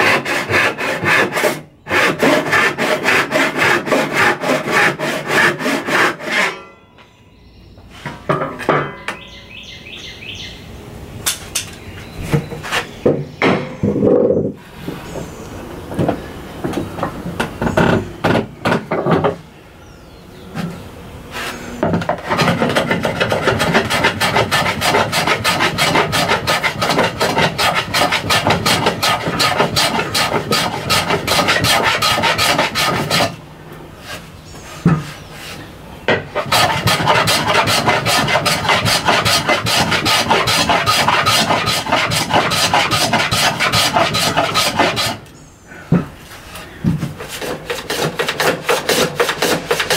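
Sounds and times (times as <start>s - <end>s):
hand plane shaving wood: 0.0s - 6.5s, 21.4s - 33.4s, 36.3s - 45.3s, 46.5s - 49.9s.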